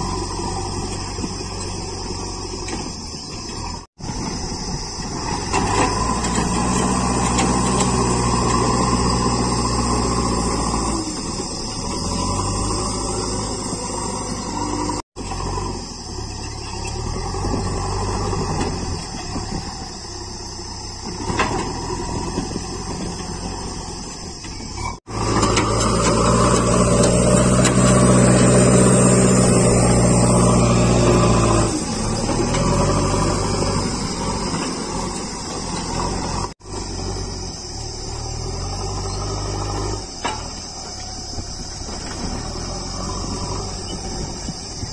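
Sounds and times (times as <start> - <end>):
backhoe diesel engine revving: 0.0 - 44.9.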